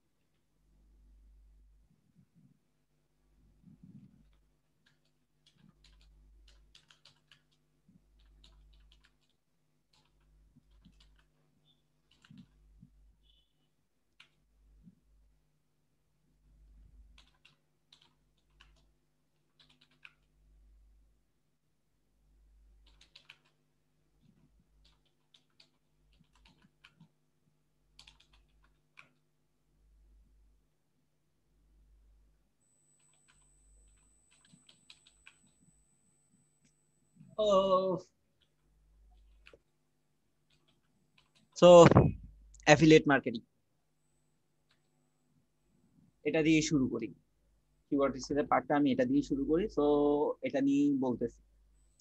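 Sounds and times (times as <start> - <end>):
low steady hum: 0.0 - 52.0
keyboard typing: 4.2 - 13.4, 14.1 - 14.5, 17.0 - 20.4, 22.8 - 23.6, 24.2 - 27.2, 27.9 - 29.3, 32.6 - 35.8, 38.4 - 39.7, 40.4 - 42.2
keyboard keystrokes: 22.8 - 23.6.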